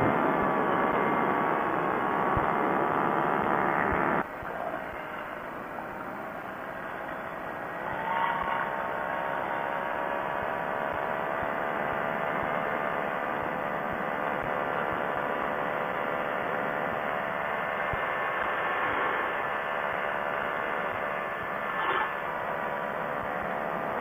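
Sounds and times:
ultralight engine and propeller: 0:00.0 - 0:24.0.

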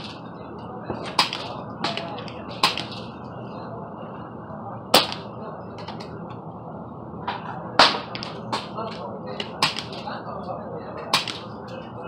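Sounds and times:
low background noise: 0:00.0 - 0:12.0
air rifle shots: 0:02.6 - 0:03.1, 0:05.0 - 0:05.3, 0:09.4 - 0:10.1, 0:11.1 - 0:11.6.

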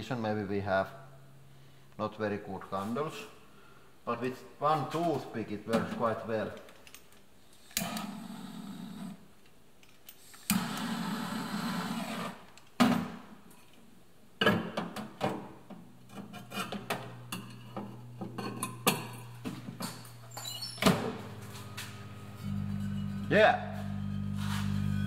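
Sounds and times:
microwave humming: 0:15.8 - 0:25.0.

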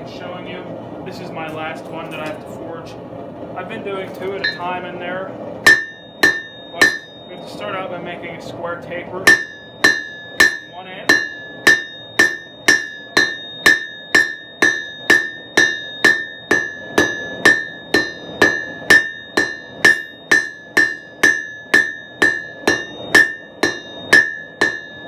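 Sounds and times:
hammer striking steel on anvil: 0:04.4 - 0:04.8, 0:05.6 - 0:07.6, 0:09.2 - 0:25.0.

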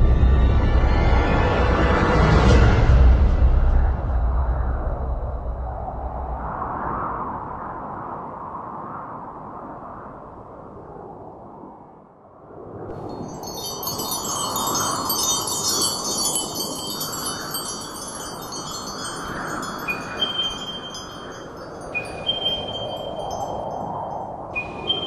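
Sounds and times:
wind rushing: 0:03.0 - 0:25.0
shimmering wind chimes: 0:12.9 - 0:25.0.

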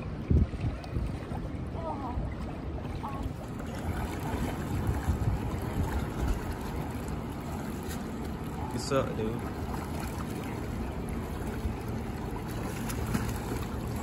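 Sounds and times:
wind buffeting microphone: 0:00.0 - 0:08.7.

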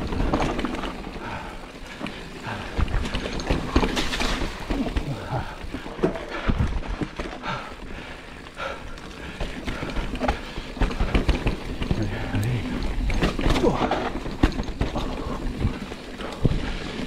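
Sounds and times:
bike rattling over rocks: 0:00.0 - 0:17.0.

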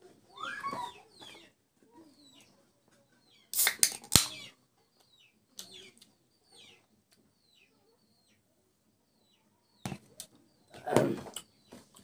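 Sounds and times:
soda can opening with hiss: 0:03.5 - 0:04.3.

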